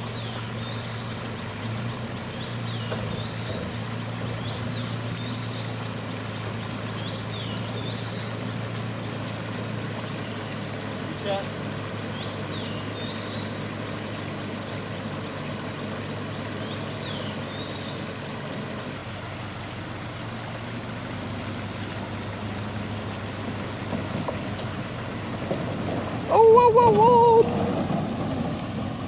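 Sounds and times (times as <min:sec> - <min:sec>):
stream water rushing: 0:00.0 - 0:29.0
van engine running: 0:00.0 - 0:29.0
bird chirps: 0:04.4 - 0:05.8, 0:12.1 - 0:13.6, 0:15.8 - 0:18.4.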